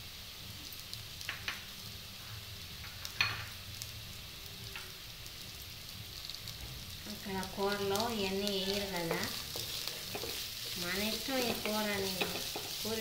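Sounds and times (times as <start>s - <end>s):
vegetables sizzling in oil: 0.0s - 13.0s
spoon knocking against pan: 11.2s - 12.8s.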